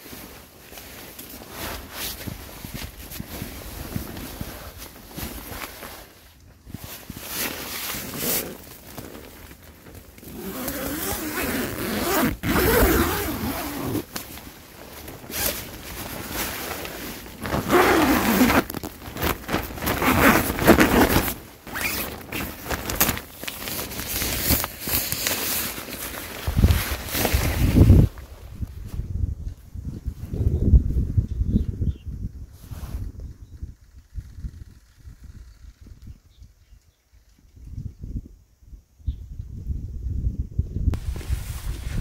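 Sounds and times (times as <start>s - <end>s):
nylon fabric rustling: 0.0s - 29.1s, 41.0s - 42.0s
zipper opening: 7.8s - 8.7s, 10.2s - 14.1s, 17.4s - 23.2s.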